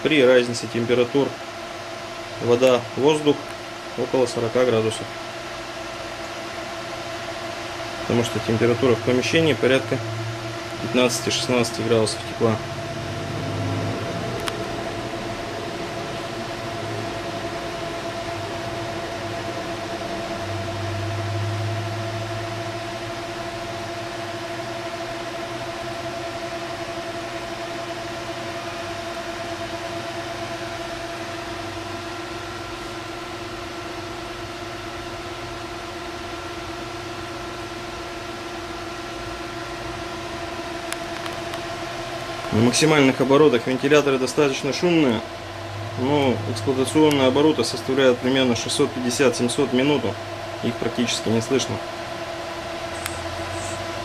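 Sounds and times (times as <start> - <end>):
fans rushing air with whine: 0.0 - 54.0
low hum: 8.2 - 23.8.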